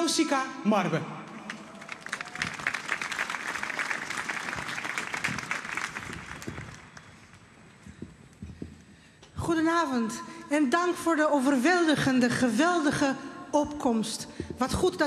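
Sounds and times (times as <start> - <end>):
large crowd applauding: 1.3 - 7.4.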